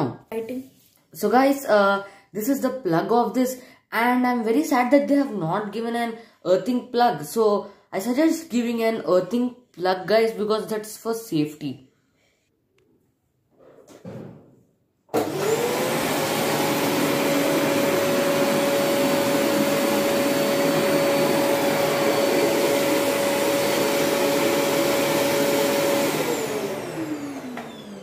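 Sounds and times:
vacuum cleaner motor whine: 15.1s - 28.0s.

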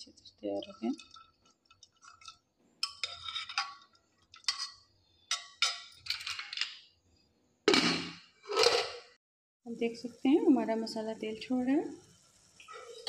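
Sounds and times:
ladle clinking in metal pot: 2.1s - 6.8s.

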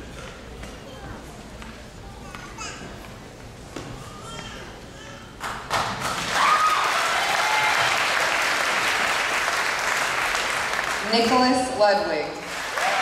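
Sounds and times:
audience applause: 5.7s - 11.3s, 12.4s - 13.0s.

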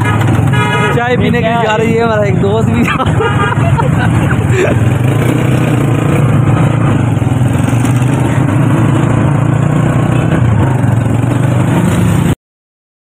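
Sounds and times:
wind and road noise: 0.0s - 12.4s
motorcycle engine running: 3.4s - 12.4s.

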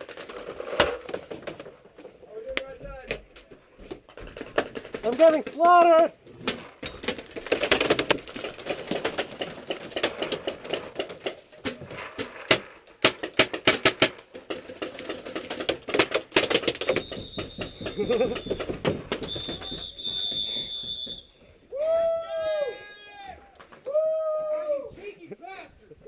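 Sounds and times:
paintballs smacking: 4.2s - 21.0s
paintball markers firing: 6.5s - 20.0s.

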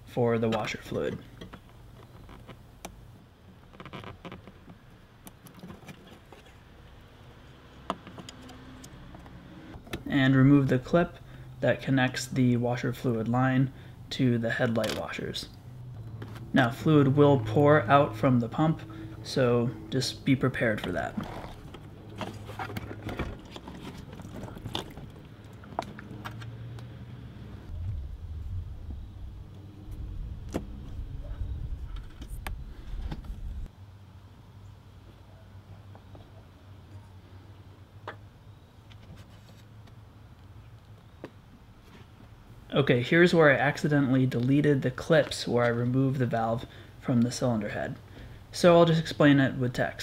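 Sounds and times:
steady low hum: 8.9s - 35.4s.

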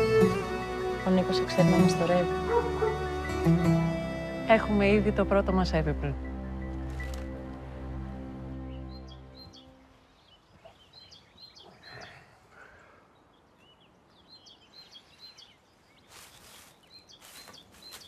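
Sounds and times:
birds chirping: 0.0s - 18.0s
straw and blanket rustling: 6.7s - 7.4s, 15.3s - 18.0s.

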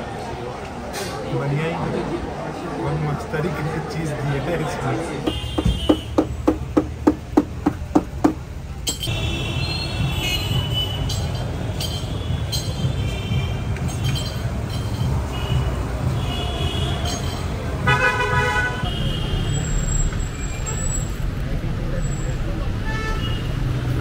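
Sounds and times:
passing cars rumble: 0.0s - 24.0s
car horn honks: 5.2s - 6.4s, 8.9s - 11.2s, 15.3s - 19.9s, 22.8s - 23.6s.

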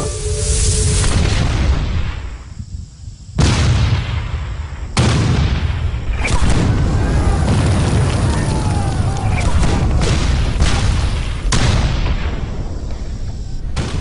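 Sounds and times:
cannons firing: 3.4s - 14.0s
low rumble of gunfire: 3.4s - 14.0s.

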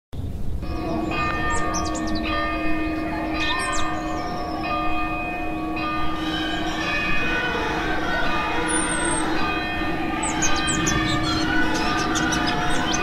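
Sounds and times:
church bells ringing: 0.6s - 13.0s
small birds chirping: 0.8s - 2.4s, 3.4s - 4.6s, 7.8s - 9.4s, 10.0s - 13.0s.

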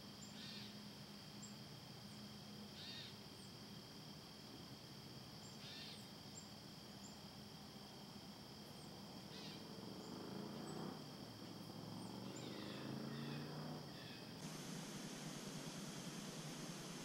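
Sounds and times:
plain hiss: 14.4s - 17.0s
steady high whine: 14.4s - 17.0s.

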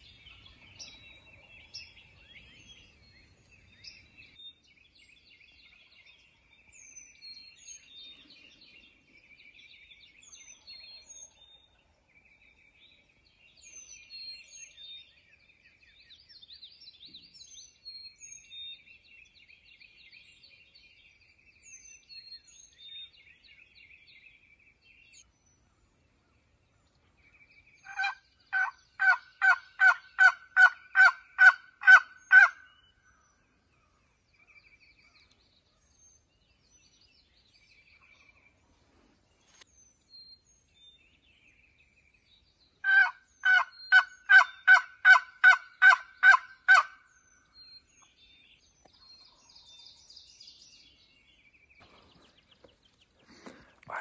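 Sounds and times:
faint songbird song: 0.0s - 54.0s
wild turkey yelping: 27.9s - 32.6s, 42.8s - 46.9s.

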